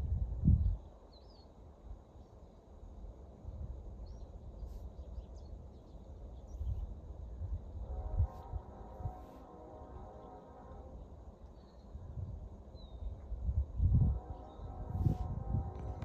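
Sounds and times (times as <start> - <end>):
birds chirping: 4.0 - 7.0, 9.8 - 13.3.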